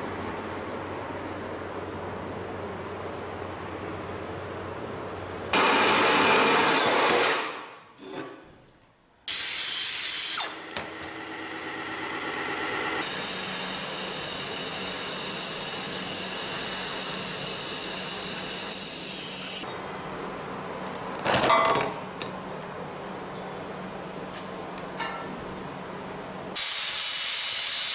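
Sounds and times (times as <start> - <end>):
metal chop saw cutting: 12.2 - 16.7
welding arc hissing: 26.6 - 27.9.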